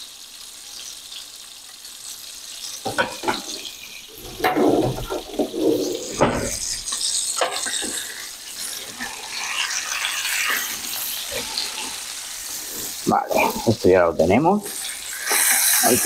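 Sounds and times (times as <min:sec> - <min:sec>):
fish sizzling in a frying pan: 0:00.0 - 0:16.0
kitchen utensils clattering: 0:02.8 - 0:09.2.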